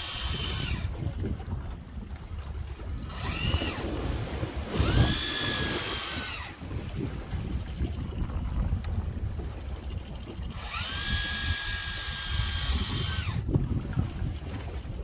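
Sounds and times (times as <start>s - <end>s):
electric reel motor whining: 0.0s - 1.2s, 3.0s - 6.8s, 9.6s - 13.6s
wind and sea rumble: 0.0s - 15.0s
short high beeps: 3.8s - 4.1s, 6.4s - 6.8s, 9.4s - 9.7s, 13.4s - 13.6s.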